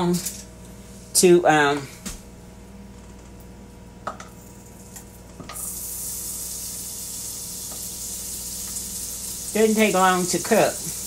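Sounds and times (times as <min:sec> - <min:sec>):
butter sizzling in hot pan: 0:05.5 - 0:11.0.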